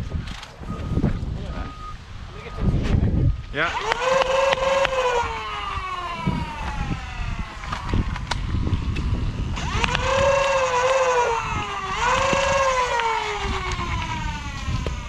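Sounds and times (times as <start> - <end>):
blaster motors whining: 2.4 - 15.0
sharp clicks: 3.7 - 5.1, 7.6 - 15.0.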